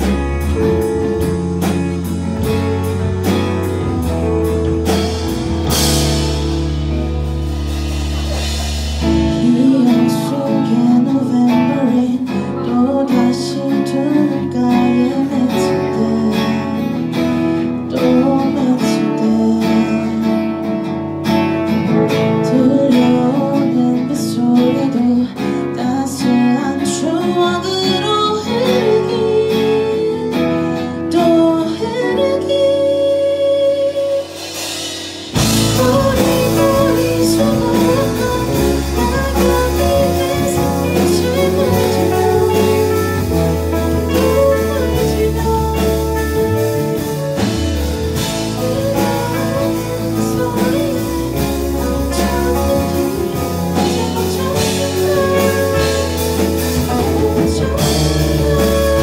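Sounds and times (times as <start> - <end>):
live band playing: 0.0 - 59.0
woman singing: 9.0 - 21.0, 21.6 - 59.0.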